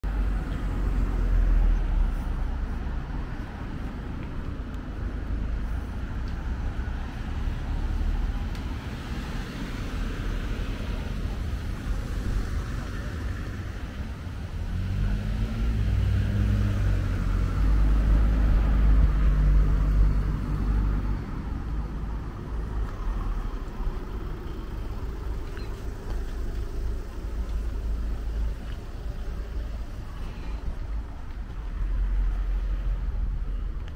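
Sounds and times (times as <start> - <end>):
traffic rumble: 0.0 - 33.9
vehicle engine passing: 14.5 - 30.6.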